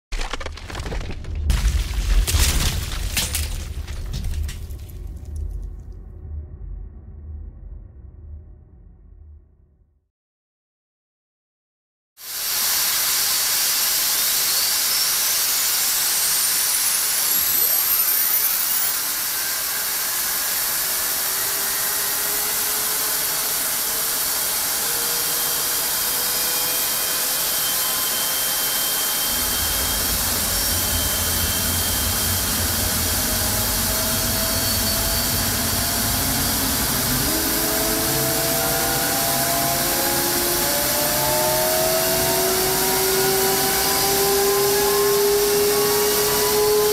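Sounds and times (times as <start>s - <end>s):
low rumble: 1.1s - 9.8s
jet engine rush of air: 12.2s - 46.9s
high engine whine: 13.6s - 46.9s.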